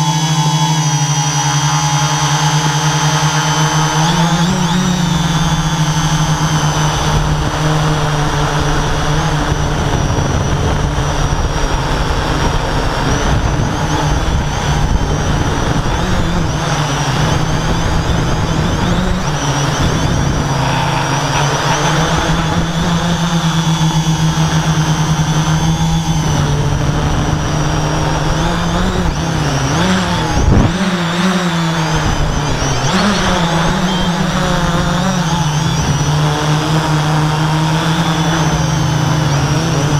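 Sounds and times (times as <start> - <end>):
drone motors humming: 0.0 - 39.9
rushing air: 6.8 - 24.4.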